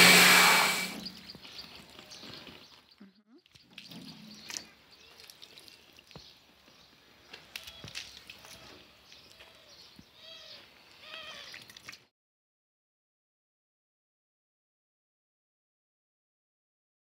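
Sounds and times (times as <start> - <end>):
water trickling and splashing: 1.0 - 12.1.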